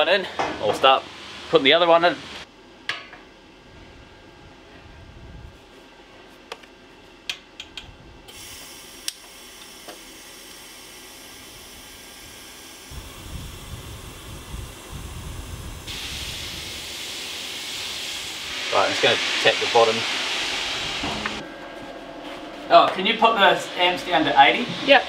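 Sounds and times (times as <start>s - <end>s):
arc welder hissing and crackling: 8.3s - 21.4s.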